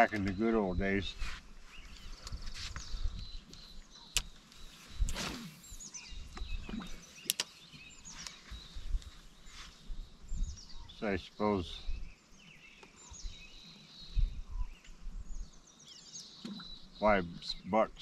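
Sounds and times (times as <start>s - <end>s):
sharp clicks: 7.2s - 7.5s.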